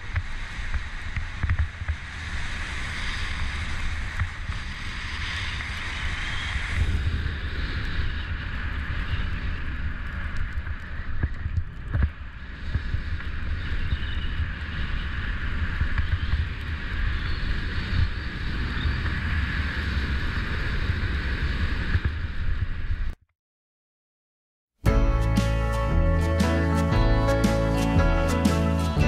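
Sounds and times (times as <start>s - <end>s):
wind buffeting microphone: 0.0s - 23.2s.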